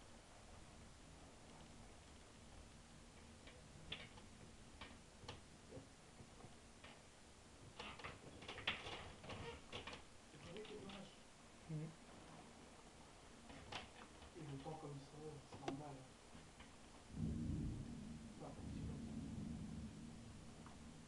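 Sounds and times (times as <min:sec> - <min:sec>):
raindrops ticking on window: 0:03.0 - 0:11.2, 0:13.4 - 0:16.8.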